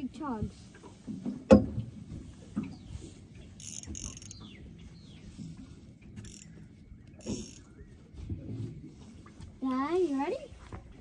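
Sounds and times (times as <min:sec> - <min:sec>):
fishing reel clicking and buzzing: 0:03.6 - 0:04.5, 0:06.2 - 0:06.6, 0:07.2 - 0:07.7.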